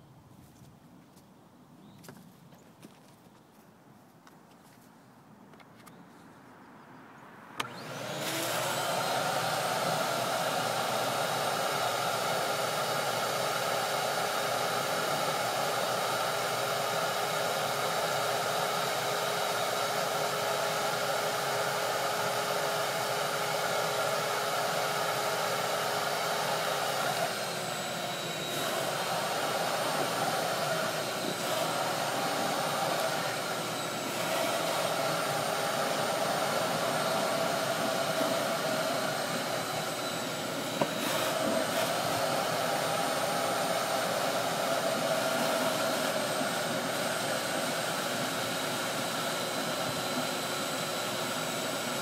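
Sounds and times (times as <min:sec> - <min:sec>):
small motor whining: 0:07.6 - 0:52.0.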